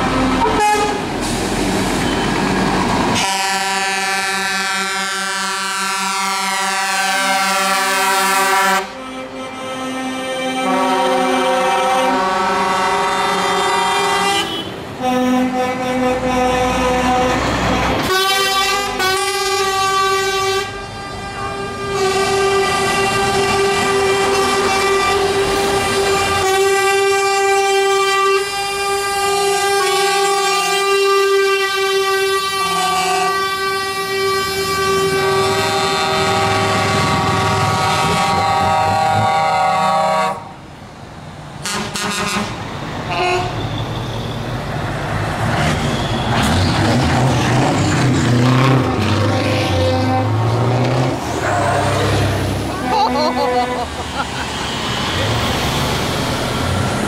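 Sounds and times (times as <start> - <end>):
truck air horns blasting: 0.0 - 2.4, 3.1 - 40.6, 41.6 - 44.5, 45.6 - 57.0
diesel engine rumble: 0.0 - 3.9, 42.4 - 57.0.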